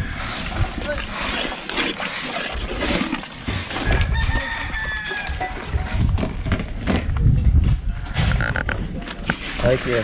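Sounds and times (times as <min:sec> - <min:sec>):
rooster crowing: 0:03.9 - 0:05.5.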